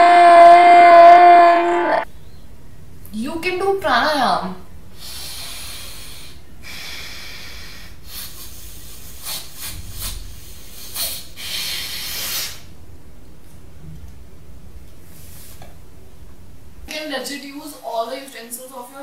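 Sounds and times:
hissing nostril breaths: 4.9 - 12.7
short sharp sniffs: 5.0 - 12.7, 15.1 - 15.6.

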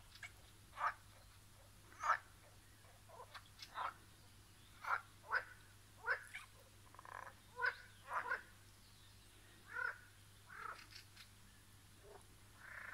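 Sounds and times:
frogs croaking: 0.1 - 4.1, 4.7 - 8.6, 9.6 - 11.0, 12.0 - 12.9.

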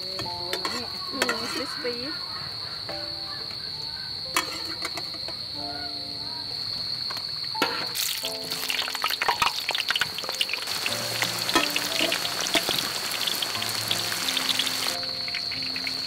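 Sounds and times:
food sizzling in hot oil: 7.6 - 16.0.

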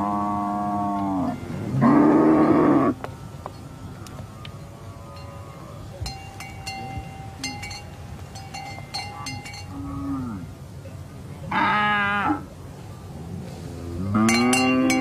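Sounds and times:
cattle bells clinking: 4.6 - 10.3, 14.1 - 15.0.

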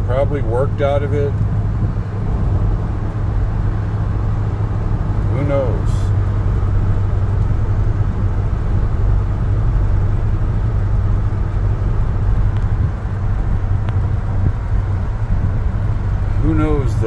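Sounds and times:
low engine drone: 0.0 - 17.0
road noise: 0.0 - 17.0.

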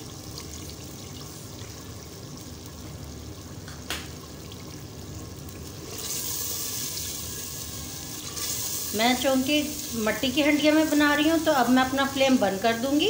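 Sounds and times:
curry sizzling in a pot: 4.3 - 13.0.

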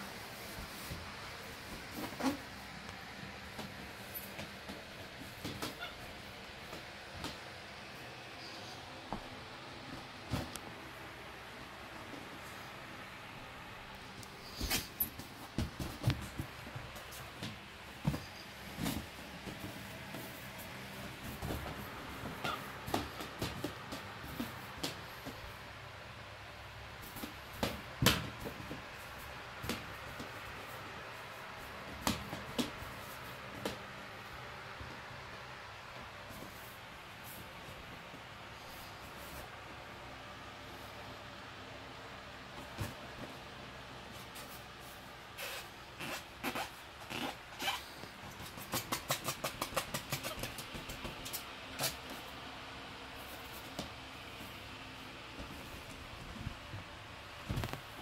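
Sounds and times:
monkey tapping rubber balloon: 48.3 - 51.9.

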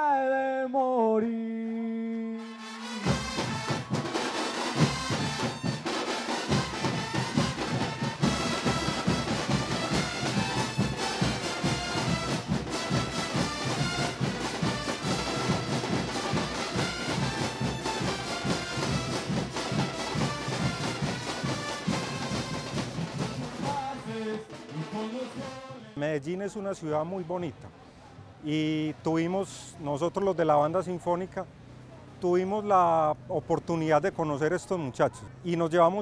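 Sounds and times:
horns playing a melody: 2.4 - 26.0
drums beating: 2.8 - 25.8.

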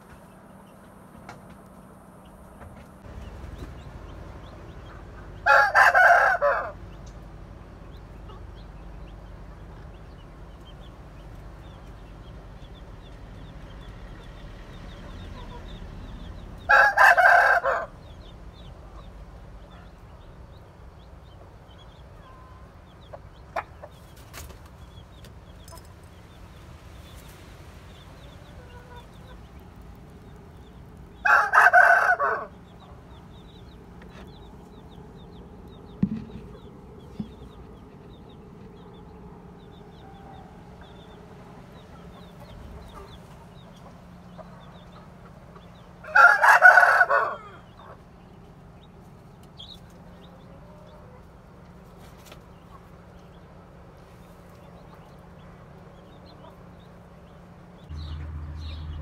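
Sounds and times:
rooster crowing: 5.4 - 6.8, 16.6 - 18.0, 31.2 - 32.6, 46.0 - 47.8.

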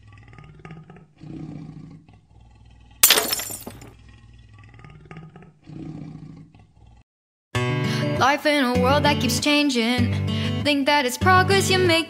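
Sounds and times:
lion growling and roaring: 0.0 - 3.0, 3.9 - 7.0
glass shattering crash: 3.0 - 3.9.

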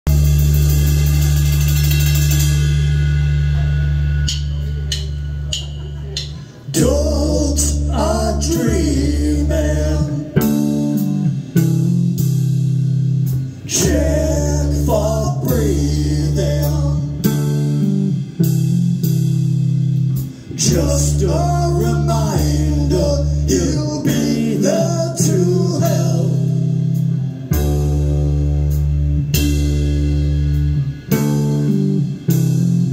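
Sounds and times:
drum kit beat: 0.0 - 32.9
electric bass guitar: 0.0 - 32.9
man singing: 6.7 - 10.8, 13.6 - 17.4, 20.5 - 26.8.

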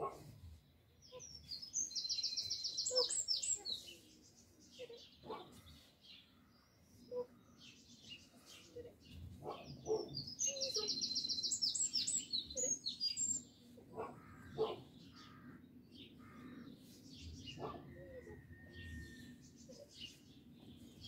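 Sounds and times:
songbird singing: 0.0 - 21.0.

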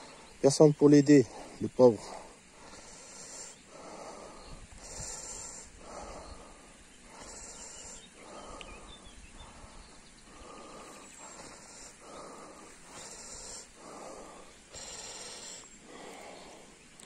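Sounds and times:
man breathing heavily: 0.0 - 0.4, 1.2 - 17.0.

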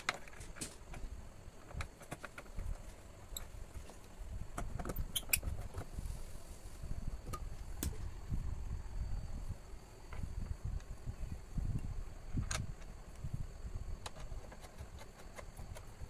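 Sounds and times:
screwdriver clicks and scrapes: 0.0 - 5.9, 14.0 - 16.0.

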